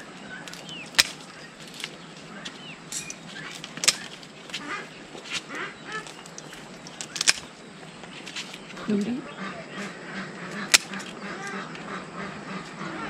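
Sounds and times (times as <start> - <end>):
scissors snipping stems: 0.5 - 7.5, 10.5 - 11.6.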